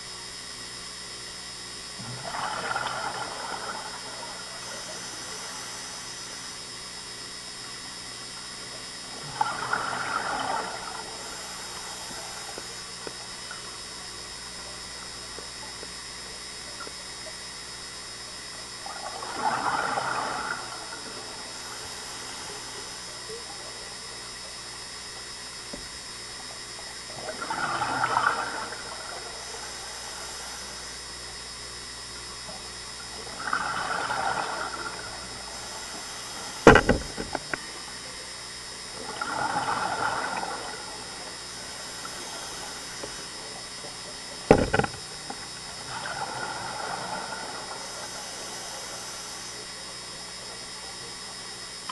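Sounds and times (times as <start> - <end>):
steady regulator hiss: 0.0 - 51.9
exhaled bubbles underwater: 0.2 - 51.9
sharp knocks: 36.7 - 37.4, 44.5 - 45.0.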